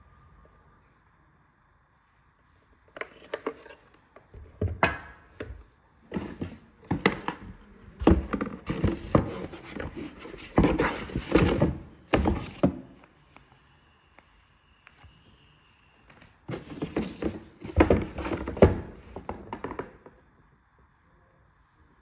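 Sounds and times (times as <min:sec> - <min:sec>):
knocks and thumps: 0:04.4 - 0:13.0
cardboard flaps rustling: 0:06.1 - 0:13.0.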